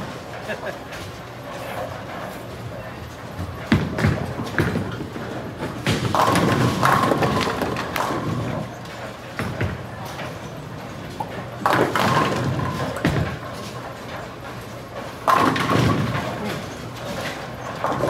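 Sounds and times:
bowling pins clattering: 0:00.0 - 0:18.0
din of bowling hall: 0:00.0 - 0:18.0.

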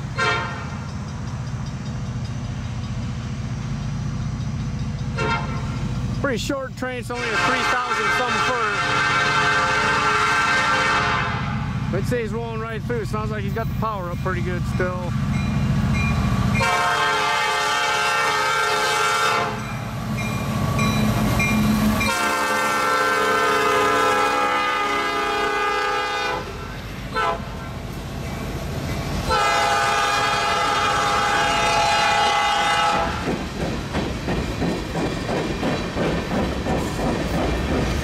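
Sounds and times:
train wheels clacking on rails: 0:00.0 - 0:06.6, 0:28.0 - 0:38.0
diesel locomotive engines rumbling: 0:00.0 - 0:38.0
train air horn blasts: 0:00.2 - 0:00.7, 0:05.2 - 0:05.8, 0:07.1 - 0:11.6, 0:16.6 - 0:19.6, 0:22.1 - 0:27.6, 0:29.3 - 0:33.2.

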